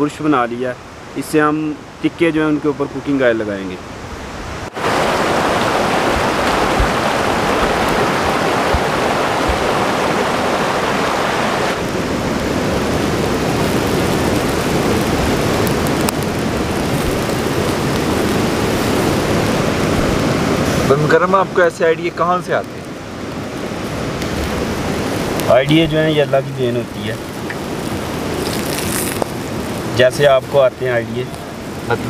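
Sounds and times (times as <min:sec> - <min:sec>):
faint crackles: 0:04.7 - 0:32.0
meat sizzling on charcoal grill: 0:11.8 - 0:32.0.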